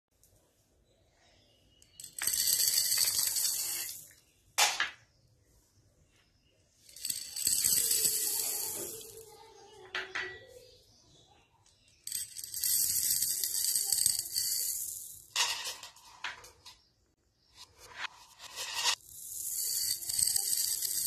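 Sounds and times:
plastic beads clattering on wood: 1.8 - 4.9, 6.9 - 9.3, 11.9 - 16.6, 18.4 - 21.0.

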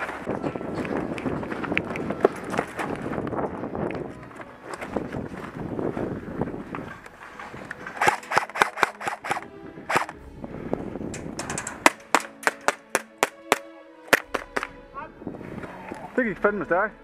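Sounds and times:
airsoft gun shots: 8.0 - 10.2.

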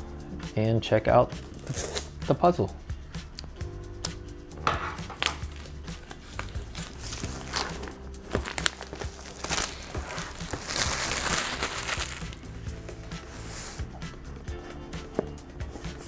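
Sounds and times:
plastic shrink-wrap crinkling: 5.2 - 12.4.

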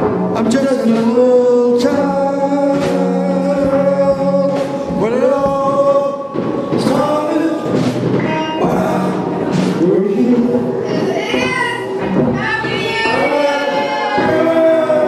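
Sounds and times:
man singing into a microphone: 0.2 - 10.8, 13.0 - 15.0.

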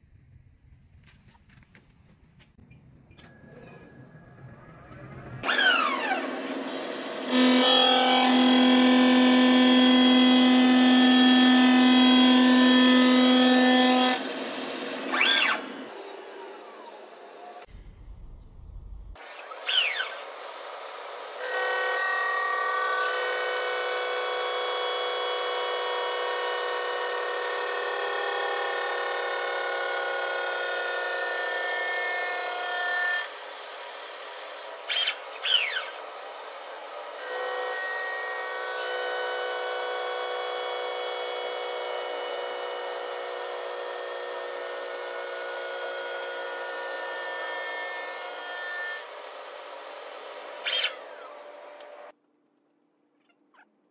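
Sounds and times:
wheel lathe machining whine: 3.2 - 17.6.

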